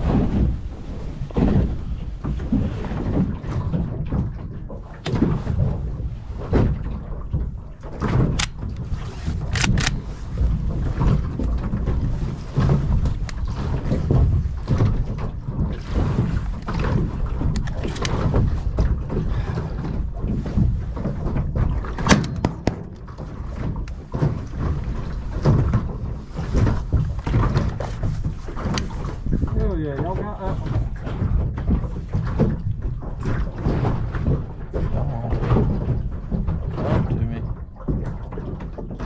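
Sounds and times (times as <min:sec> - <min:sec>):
low rumble: 0:00.0 - 0:38.4
water lapping against boat hull: 0:00.0 - 0:39.0
sharp clicks and knocks: 0:07.3 - 0:12.0, 0:16.2 - 0:18.9, 0:21.0 - 0:24.8.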